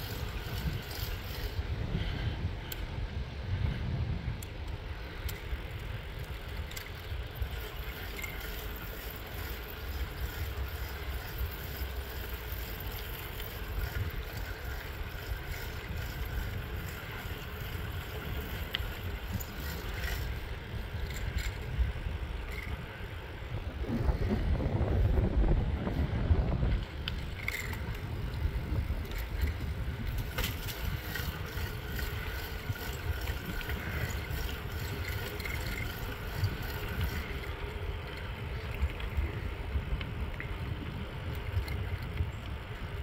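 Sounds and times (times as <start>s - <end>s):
wind buffeting microphone: 0.0s - 43.0s
faint ticks: 2.6s - 2.9s, 4.4s - 21.8s, 29.0s - 42.9s.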